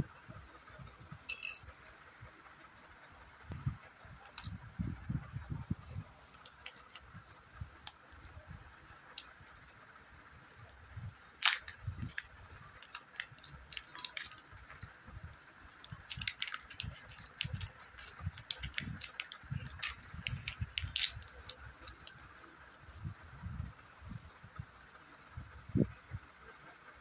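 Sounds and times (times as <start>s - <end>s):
plastic wrappers crinkling: 6.3s - 7.0s, 10.5s - 14.8s, 15.8s - 22.2s
scissors snipping wrapper: 6.4s - 7.0s, 10.5s - 12.2s, 12.8s - 14.7s, 15.9s - 22.1s.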